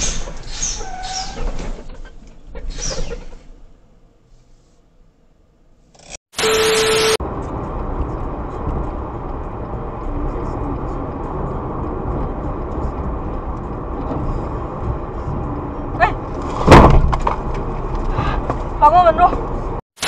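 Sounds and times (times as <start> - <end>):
car road and engine noise: 0.0 - 20.0
hiss burst with beep tone: 6.4 - 7.2
short sharp rising tone: 6.4 - 7.2.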